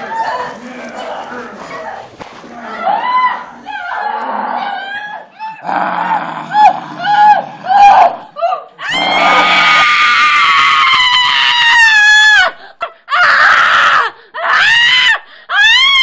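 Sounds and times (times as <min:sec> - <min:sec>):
woman screaming: 0:07.0 - 0:12.5.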